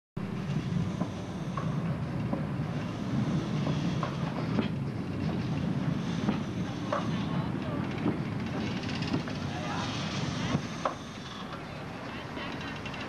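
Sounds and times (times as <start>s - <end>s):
train rumbling on rails: 0.2s - 13.0s
wheels clicking over track: 0.3s - 13.0s.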